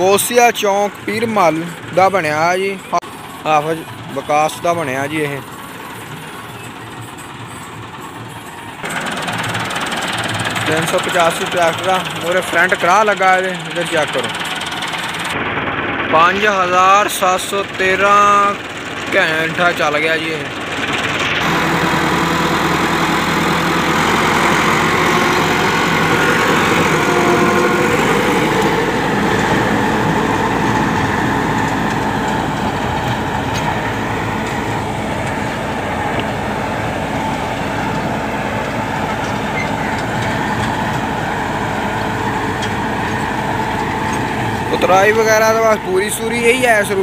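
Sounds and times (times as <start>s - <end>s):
tractor diesel engine under load: 0.0s - 47.0s
rotavator churning soil: 8.8s - 15.8s, 17.2s - 47.0s.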